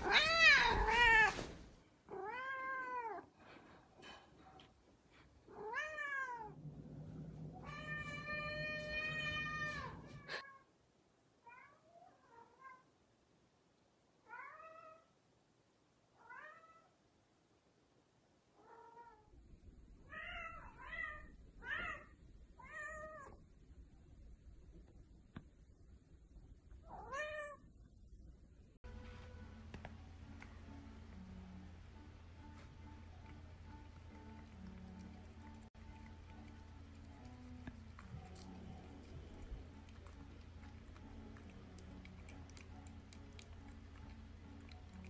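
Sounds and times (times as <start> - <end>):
cat meowing: 0.0 - 1.4, 2.1 - 3.2, 7.6 - 10.6.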